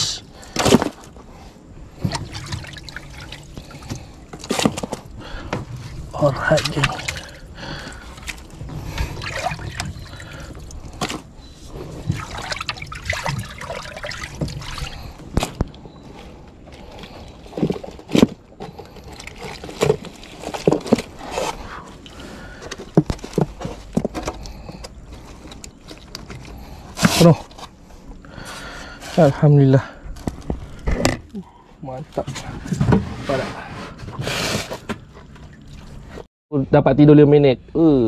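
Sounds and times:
water trickling and splashing: 0:01.9 - 0:15.3, 0:35.1 - 0:36.3.

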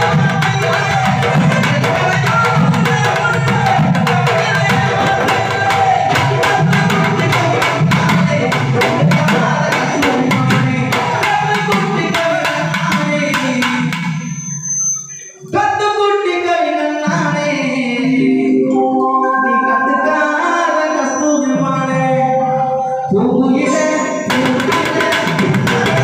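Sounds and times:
drum played fast: 0:00.0 - 0:14.4, 0:23.7 - 0:26.0.

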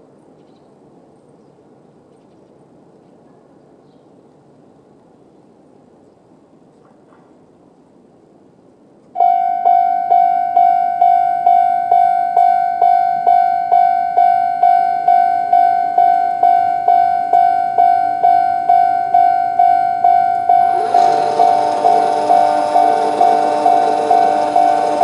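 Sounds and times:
level-crossing alarm dinging: 0:09.2 - 0:25.0.

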